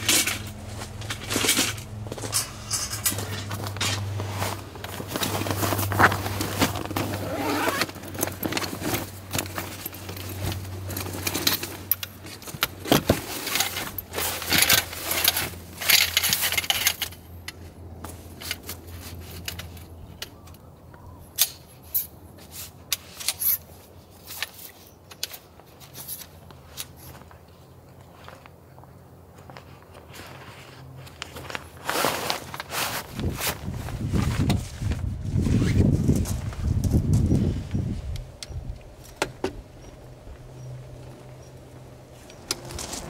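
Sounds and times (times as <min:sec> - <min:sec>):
canvas bag rustling: 0:00.0 - 0:16.3, 0:30.4 - 0:38.0, 0:40.1 - 0:43.0
tent poles clinking: 0:00.0 - 0:28.4, 0:29.5 - 0:43.0.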